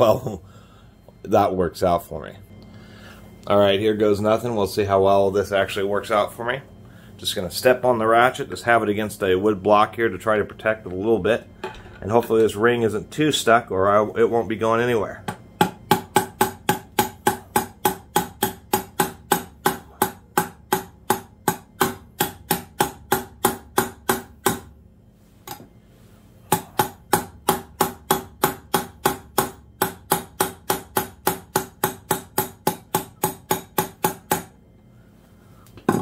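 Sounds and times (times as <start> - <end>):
hammer striking steel bar: 15.6 - 24.7, 26.5 - 34.5.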